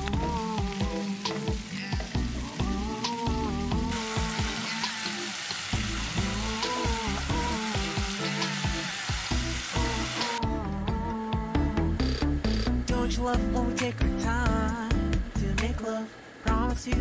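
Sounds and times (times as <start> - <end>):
meat sizzling in a grill pan: 0.0 - 10.4
soft background music: 0.0 - 17.0.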